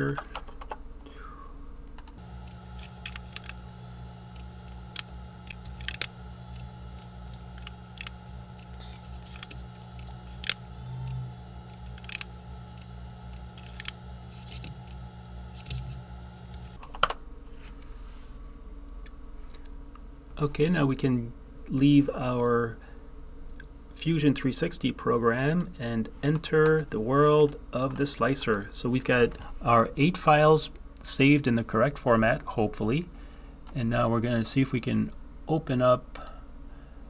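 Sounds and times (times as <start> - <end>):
steady low hum: 0.0 - 37.0
mouse and keyboard clicks: 4.3 - 17.1.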